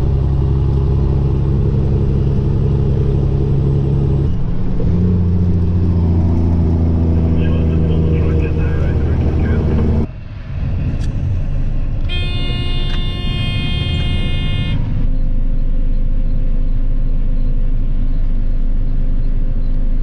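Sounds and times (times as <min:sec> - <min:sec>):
combine harvester drone: 0:00.0 - 0:20.0
horn-like tone: 0:12.0 - 0:15.1.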